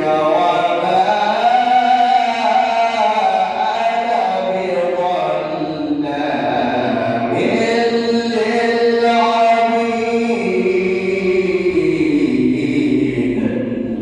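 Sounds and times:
man chanting: 0:00.0 - 0:14.0.

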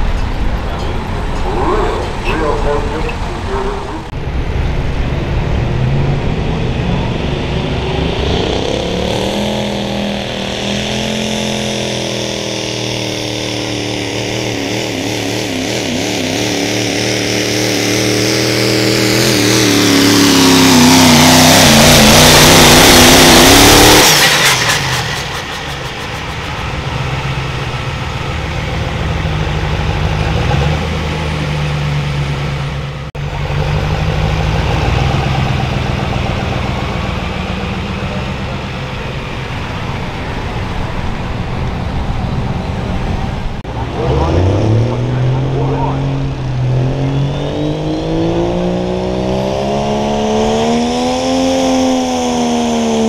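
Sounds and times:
diesel engine at full throttle: 0:00.0 - 0:53.0
uneven engine idle: 0:24.2 - 0:44.3.

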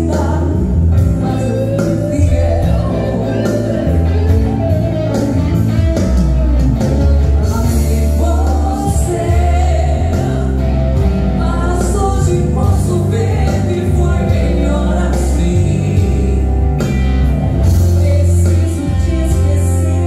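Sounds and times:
woman singing: 0:00.0 - 0:04.2, 0:07.4 - 0:10.7, 0:11.4 - 0:16.4, 0:17.7 - 0:20.0
electric bass: 0:00.0 - 0:20.0
electric guitar: 0:00.0 - 0:20.0
keyboard: 0:00.0 - 0:20.0.

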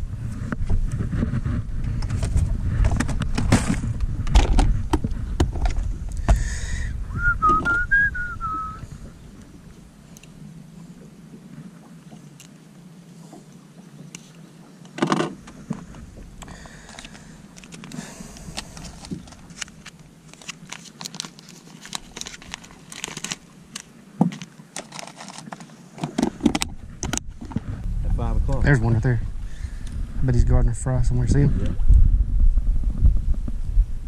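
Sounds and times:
plastic tackle box handled: 0:01.8 - 0:06.4, 0:14.9 - 0:27.7
small clicks and crinkling: 0:12.1 - 0:12.6, 0:14.0 - 0:27.7.

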